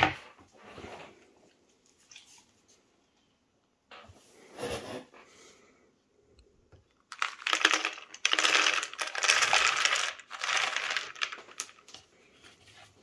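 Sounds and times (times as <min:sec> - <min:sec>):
kibble pieces clicking: 0:06.9 - 0:12.0
kibble pouring into bowl: 0:07.1 - 0:12.0.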